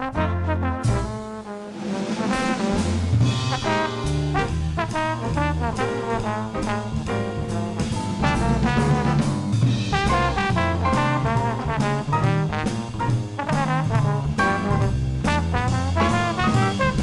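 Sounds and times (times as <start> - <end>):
upright bass: 0.0 - 1.4, 2.3 - 17.0
drum kit: 0.0 - 17.0
trombone solo: 0.0 - 17.0.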